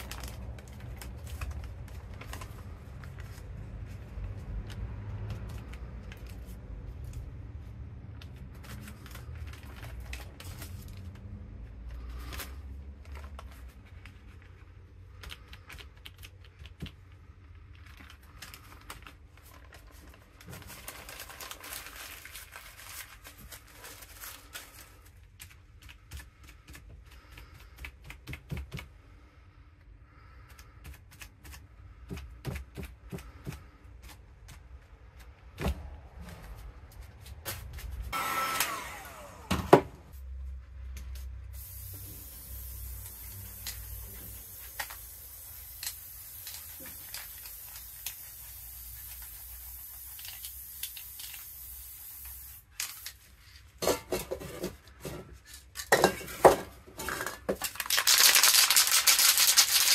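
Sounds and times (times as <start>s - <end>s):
spray paint can hissing: 41.2s - 53.2s, 58.0s - 59.9s.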